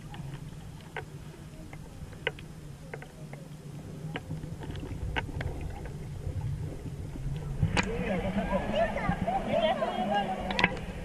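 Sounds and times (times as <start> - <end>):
faint underwater clicks: 0.0 - 8.0, 10.4 - 11.0
muffled underwater rumble: 0.0 - 11.0.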